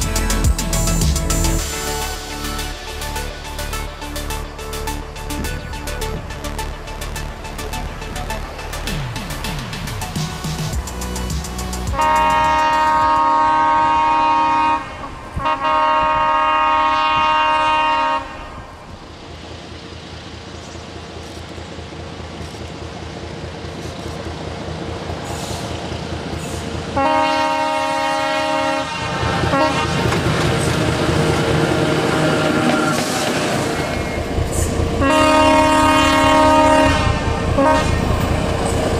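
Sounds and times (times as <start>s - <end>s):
diesel engine running: 0.0s - 12.8s
train wheel noise: 0.0s - 38.9s
locomotive horn blasts: 11.9s - 18.8s, 26.9s - 30.2s, 35.0s - 38.2s.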